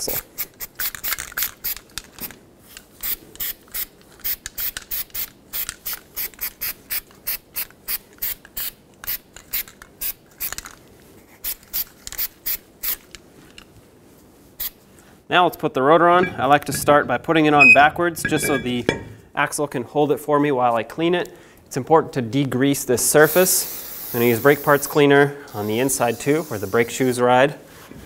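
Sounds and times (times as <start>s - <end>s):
spray can hissing in bursts: 23.2s - 25.0s, 25.6s - 27.2s.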